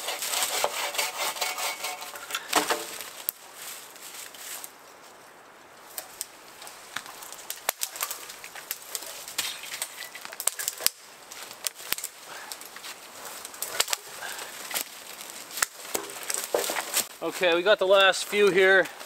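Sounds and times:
branches rustling: 0.0 - 19.0
dry wood snapping: 0.1 - 3.4, 5.8 - 17.1.

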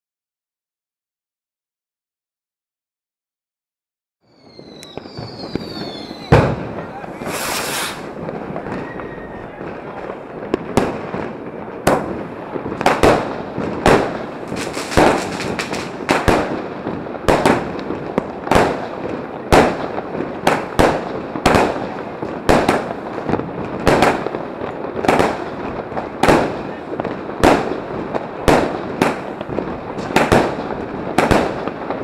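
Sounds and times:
firework bangs: 4.3 - 32.0
fuse hissing: 7.2 - 8.1.

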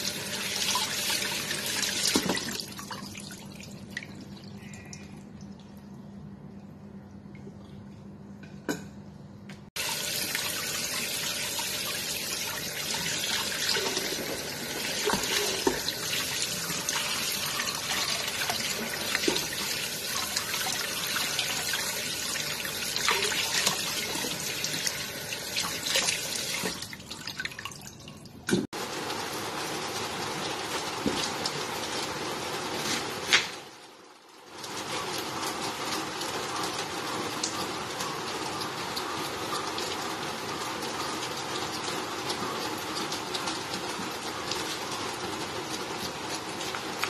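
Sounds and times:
tap water running into steel bowl: 0.0 - 3.3, 9.8 - 27.9.

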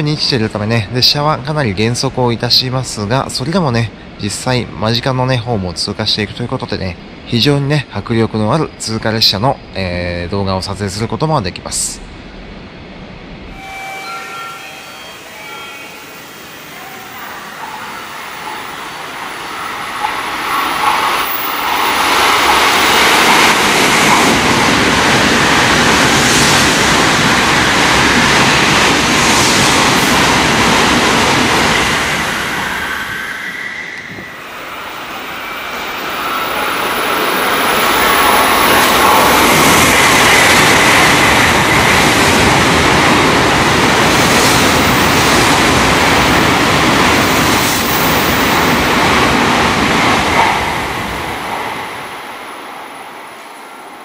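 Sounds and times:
high-speed trains passing: 0.0 - 54.0.

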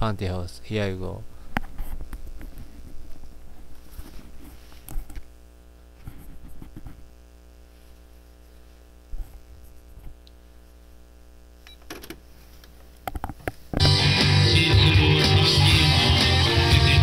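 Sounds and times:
guitar amplifier mains hum: 0.0 - 17.0.

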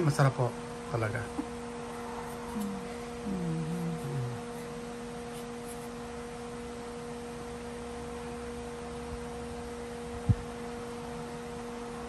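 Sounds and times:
steady electrical hum: 0.0 - 12.0.

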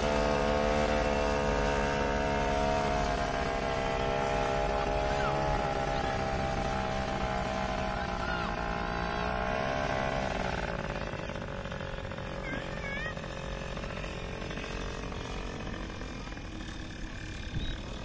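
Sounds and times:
paraglider engine and propeller: 0.0 - 18.0.

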